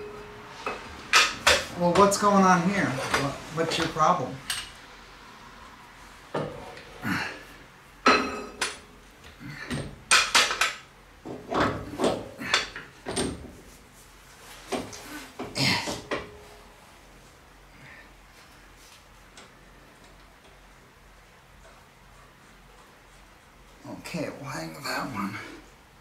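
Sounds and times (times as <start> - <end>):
metal clanks and knocks: 8.0 - 8.9, 9.5 - 13.6.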